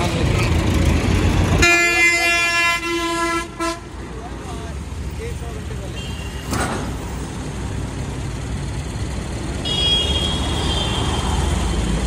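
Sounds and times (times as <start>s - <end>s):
vehicle rumbling on road: 0.0s - 12.0s.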